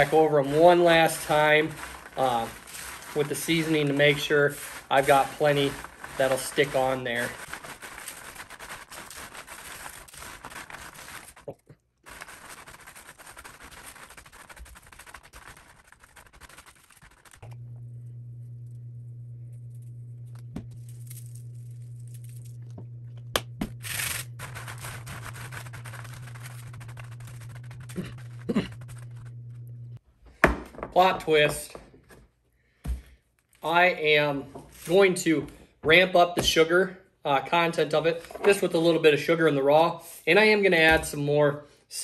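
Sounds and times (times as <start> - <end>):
nuts rustling on foil: 0.0 - 17.4, 23.9 - 29.0
steady low hum: 17.4 - 30.0.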